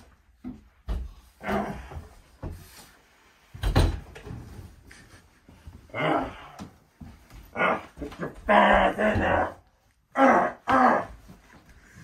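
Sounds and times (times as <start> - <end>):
man making dog-like noises: 7.5 - 11.2.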